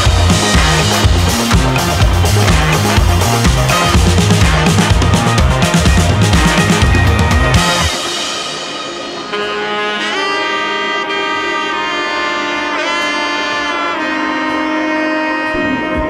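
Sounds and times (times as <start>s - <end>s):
drum-driven music: 0.0s - 15.3s
long held horn notes: 0.0s - 16.0s.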